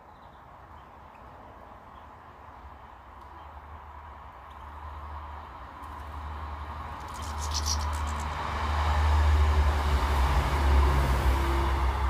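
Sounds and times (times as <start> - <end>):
passing motor vehicle rumble: 3.4 - 12.0.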